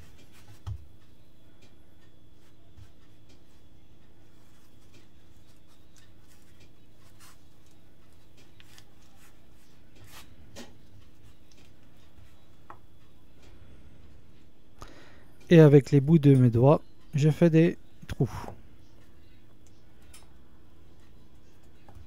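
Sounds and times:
steady low hum: 0:00.0 - 0:22.0
hand rubbing dough: 0:02.3 - 0:12.7.

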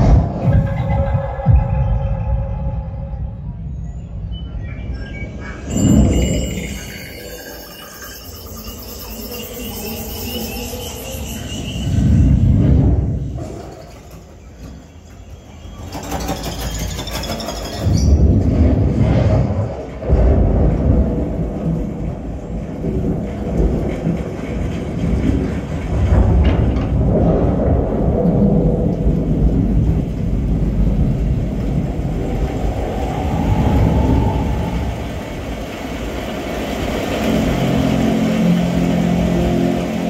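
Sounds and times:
rolling thunder: 0:00.0 - 0:04.2, 0:11.9 - 0:14.0, 0:17.8 - 0:40.0
rain: 0:02.2 - 0:40.0.

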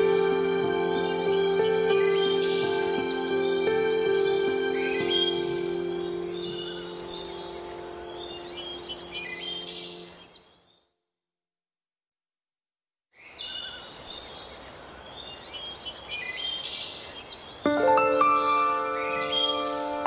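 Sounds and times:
soft background music: 0:00.0 - 0:10.2, 0:17.7 - 0:20.0
birdsong chirps: 0:00.0 - 0:11.0, 0:13.2 - 0:20.0.

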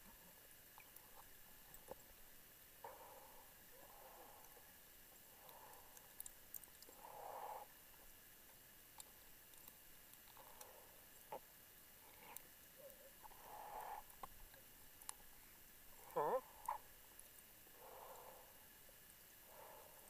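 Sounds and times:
muffled diver breathing: 0:02.8 - 0:08.3, 0:10.3 - 0:14.4, 0:17.7 - 0:20.0.

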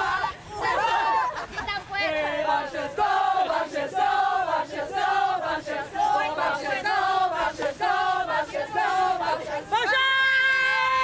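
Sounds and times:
women chanting a cheer: 0:00.0 - 0:11.0.

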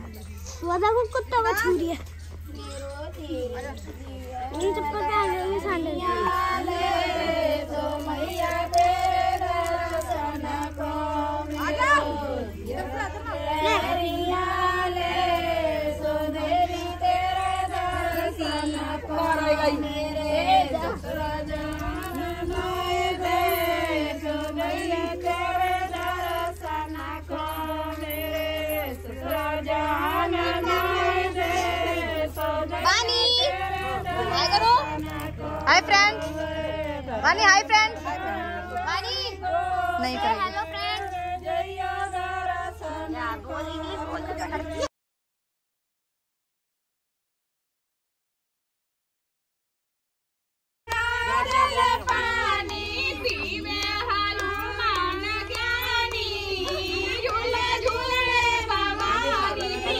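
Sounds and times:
faint low hum: 0:00.0 - 0:44.8
group of people singing: 0:02.4 - 0:44.9, 0:50.9 - 0:59.9.

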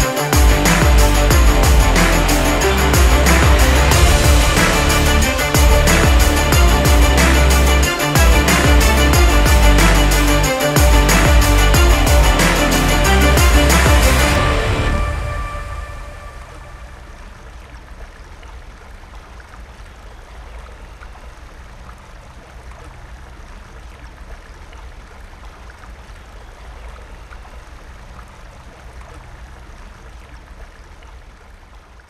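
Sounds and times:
rushing noise with low rumble: 0:00.0 - 0:31.8.

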